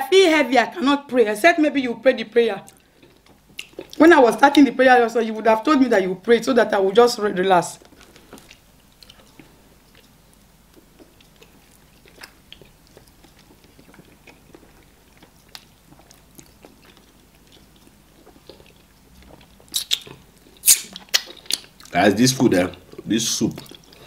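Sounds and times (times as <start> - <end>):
chewing and wet mouth sounds: 2.6 - 4.6, 7.8 - 24.0
sharp mouth sounds: 19.7 - 21.7.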